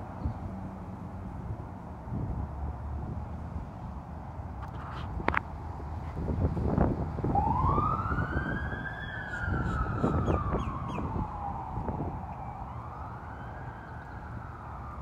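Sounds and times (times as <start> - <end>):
siren wailing: 7.2 - 15.0.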